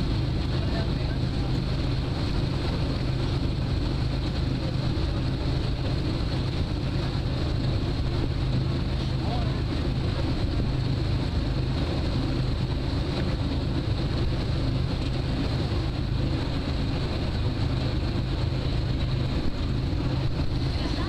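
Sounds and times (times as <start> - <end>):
ferry engine drone: 0.0 - 21.0
water rushing along hull: 0.0 - 21.0
wind on microphone: 0.0 - 21.0.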